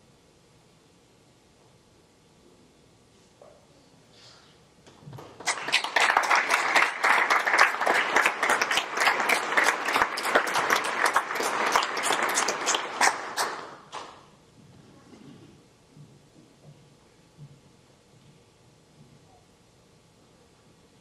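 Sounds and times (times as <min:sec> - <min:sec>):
audience applauding: 0:05.2 - 0:14.0.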